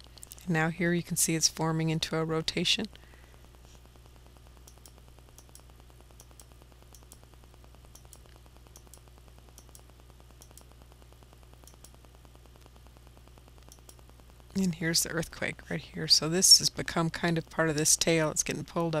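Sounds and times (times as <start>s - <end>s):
low electrical hum: 0.0s - 19.0s
computer mouse clicks: 4.6s - 7.3s, 7.9s - 10.7s, 11.6s - 12.0s, 13.6s - 14.0s.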